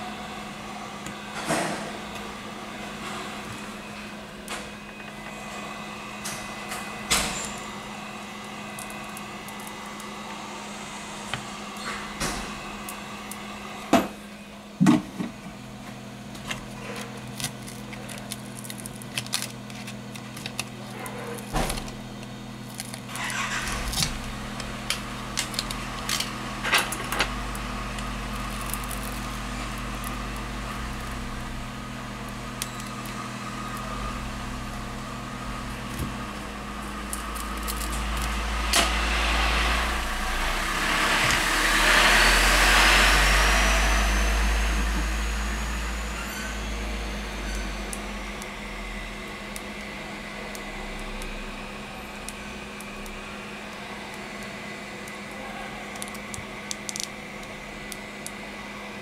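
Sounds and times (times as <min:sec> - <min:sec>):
hot-air gun humming: 0:00.0 - 0:59.0
rushing blow of air: 0:38.8 - 0:45.2.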